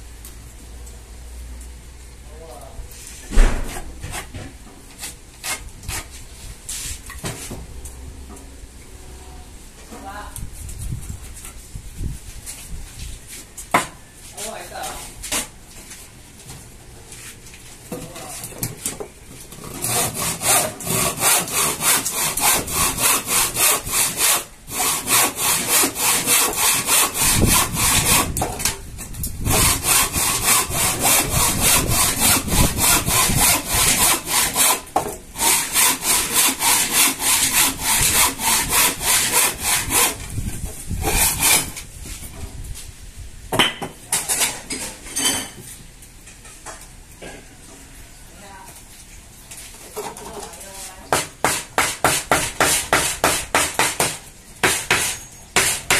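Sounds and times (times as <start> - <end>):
handsaw cutting wood: 19.6 - 28.4, 29.4 - 40.3, 41.0 - 41.7.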